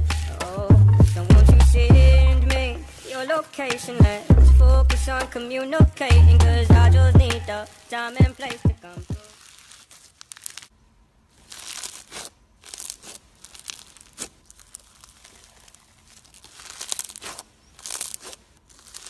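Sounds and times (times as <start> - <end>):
slime crackling and crinkling: 0.0 - 19.0.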